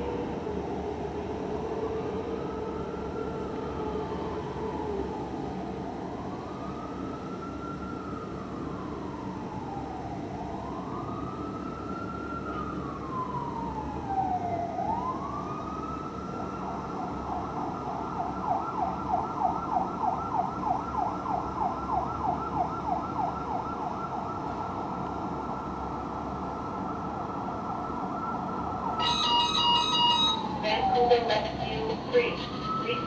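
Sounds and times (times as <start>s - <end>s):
fire engine siren: 0.0s - 33.0s.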